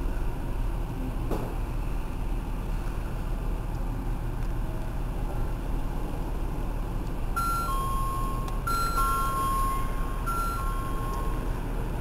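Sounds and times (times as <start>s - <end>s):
steady low rumble: 0.0s - 12.0s
two-tone electronic chime: 7.4s - 12.0s.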